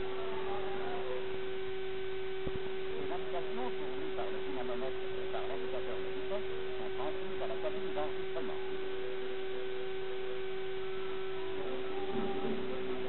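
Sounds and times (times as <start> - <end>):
faint indistinct voices: 0.0 - 13.0
steady hum: 0.0 - 13.0
faint high tones: 7.1 - 13.0.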